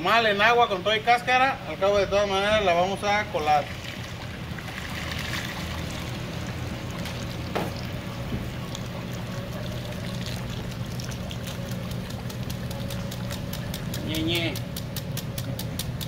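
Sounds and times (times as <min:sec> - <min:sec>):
low hum: 0:01.8 - 0:15.9
liquid stream splashing into pot: 0:03.8 - 0:14.0.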